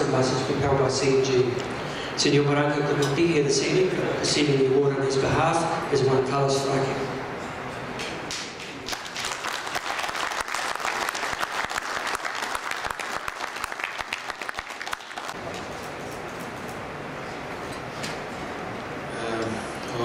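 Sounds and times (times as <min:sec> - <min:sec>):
audience clapping: 0:08.0 - 0:15.4.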